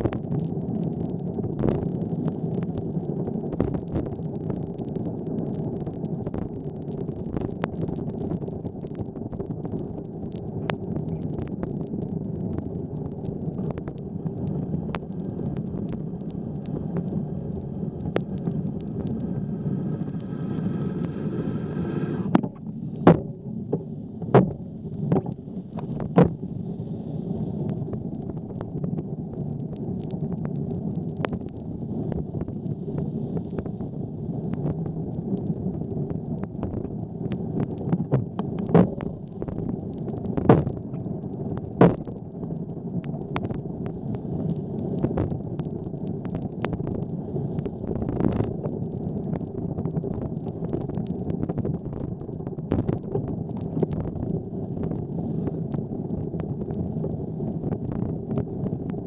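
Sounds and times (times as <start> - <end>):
wind noise: 0.0 - 59.0
sharp knocks and pops: 3.5 - 4.2, 13.5 - 16.1, 22.3 - 26.4, 36.4 - 42.2, 43.0 - 44.0, 45.0 - 47.0, 47.6 - 55.0.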